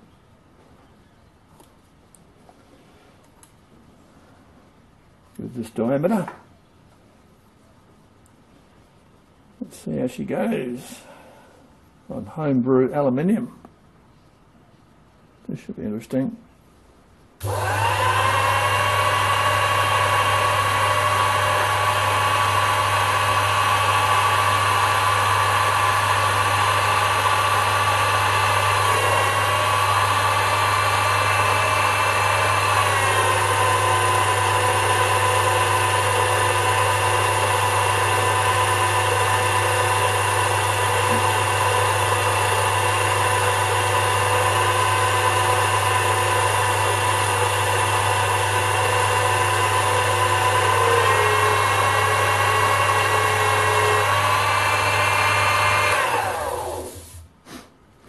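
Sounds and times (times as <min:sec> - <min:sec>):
lathe motor whine: 0:17.4 - 0:57.2.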